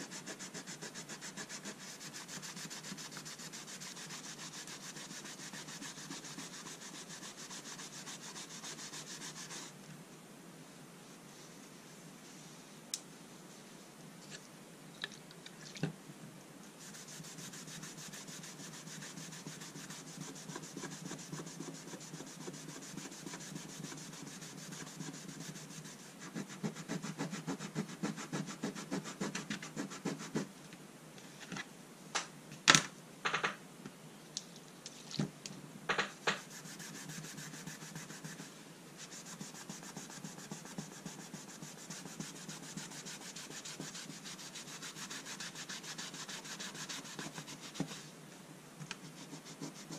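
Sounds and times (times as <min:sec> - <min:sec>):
cloth rubbing on folding rule: 0:00.0 - 0:09.8, 0:16.8 - 0:30.5, 0:36.4 - 0:48.1, 0:49.0 - 0:49.9.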